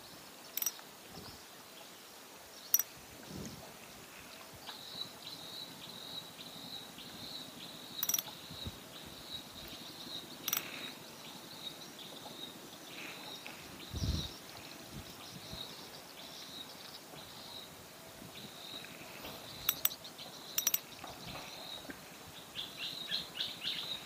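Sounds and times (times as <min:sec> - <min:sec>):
river ambience: 0:00.0 - 0:24.0
fishing reel clicks: 0:00.6 - 0:00.8, 0:08.0 - 0:08.3, 0:20.6 - 0:20.8.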